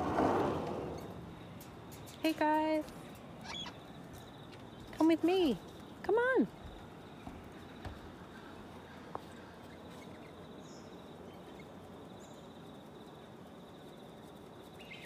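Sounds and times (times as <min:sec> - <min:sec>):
high insect trill: 0:00.8 - 0:07.9, 0:09.4 - 0:15.0
faint bird chirps: 0:03.1 - 0:13.2, 0:14.2 - 0:15.0.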